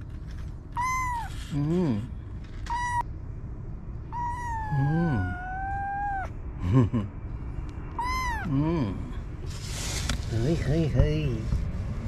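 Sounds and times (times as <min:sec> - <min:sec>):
kitten mewing: 0:00.7 - 0:03.0, 0:04.1 - 0:06.4, 0:07.9 - 0:09.1.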